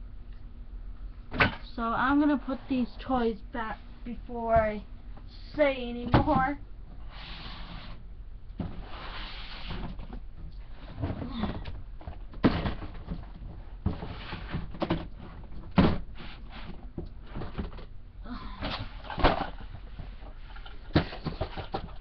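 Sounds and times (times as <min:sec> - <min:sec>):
toys rustling and clattering: 0:18.6 - 0:22.0.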